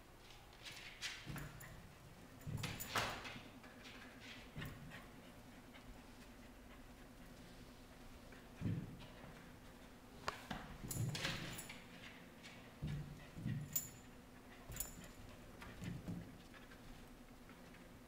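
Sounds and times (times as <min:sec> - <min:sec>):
light metallic jingles: 0:13.4 - 0:15.4.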